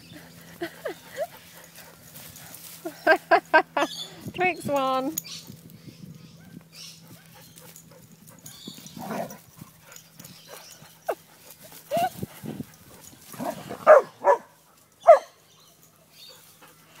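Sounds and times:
dogs barking: 13.4s - 15.5s.

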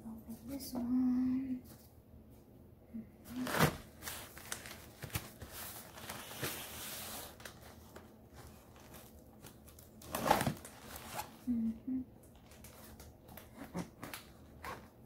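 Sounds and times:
cardboard rustling and scraping: 3.3s - 11.4s.

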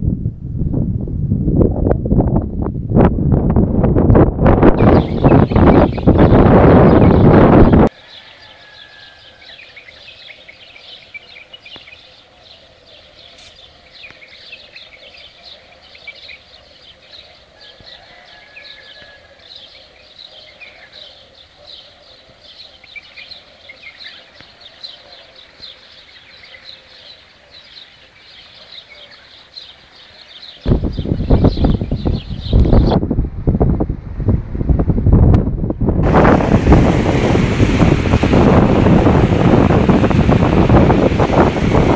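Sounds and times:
wind blast on microphone: 0.0s - 8.0s, 30.6s - 41.9s
small birds chirping: 4.8s - 33.0s
rush of floodwater: 36.0s - 41.9s.

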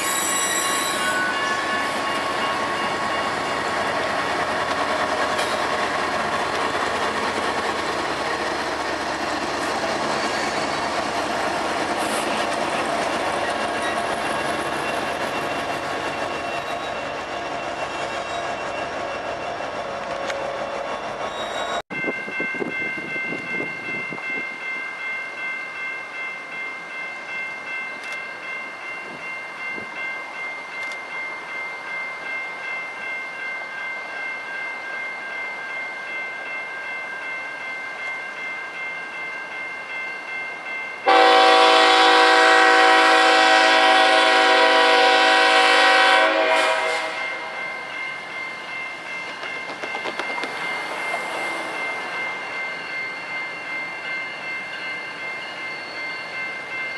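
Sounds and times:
freight train locomotives rumbling: 0.0s - 56.9s
diesel locomotive air horn blast: 41.0s - 47.6s.

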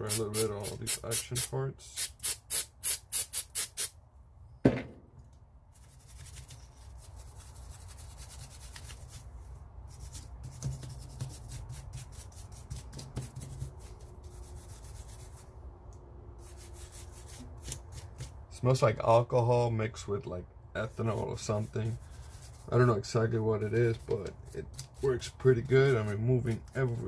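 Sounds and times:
sharp knock: 4.6s - 5.1s
bristle brush scrubbing metal: 5.8s - 9.3s, 9.9s - 15.5s, 16.4s - 18.4s, 20.8s - 27.0s.

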